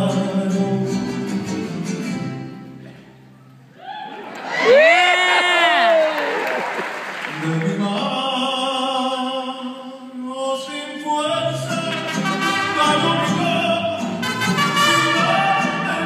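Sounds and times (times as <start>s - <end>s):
mariachi band playing: 0.0s - 3.3s, 11.2s - 16.0s
operatic solo singing: 7.3s - 16.0s.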